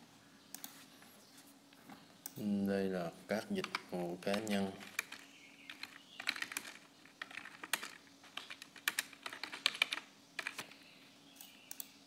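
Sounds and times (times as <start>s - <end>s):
keyboard typing: 3.6s - 10.8s.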